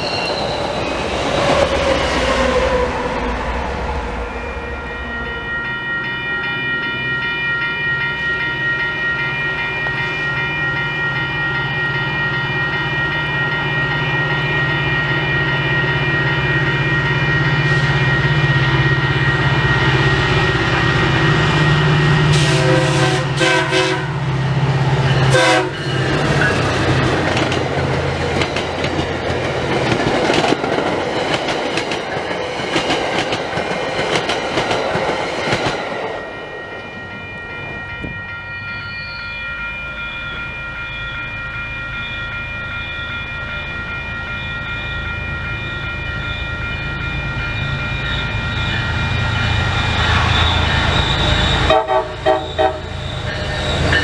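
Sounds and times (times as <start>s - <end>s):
train engine drone: 0.0s - 54.0s
high ringing: 1.9s - 34.5s, 35.1s - 54.0s
train horn: 22.3s - 24.4s, 25.2s - 25.9s, 50.1s - 53.1s
train wheels clacking: 24.9s - 36.2s.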